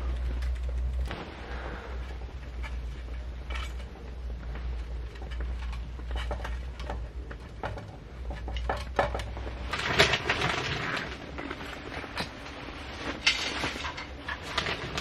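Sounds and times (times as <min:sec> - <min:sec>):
steady low hum: 0:00.0 - 0:15.0
pots and pans clattering: 0:05.3 - 0:12.2, 0:13.0 - 0:15.0.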